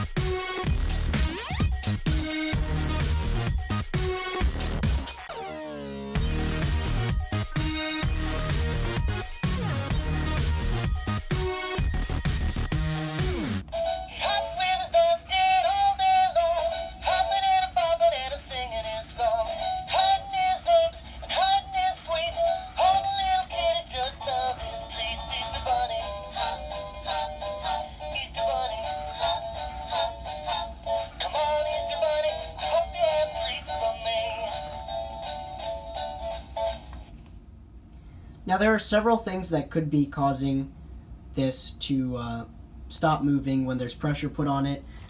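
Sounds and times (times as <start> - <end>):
toy song through tinny speaker: 13.6 - 37.1.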